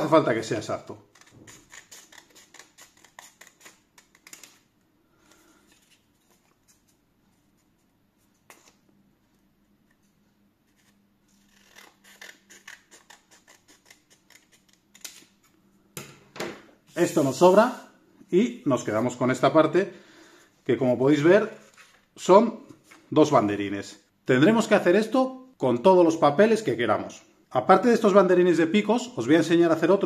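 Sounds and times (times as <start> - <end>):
scissors snipping paper: 1.0 - 4.6, 10.7 - 15.3.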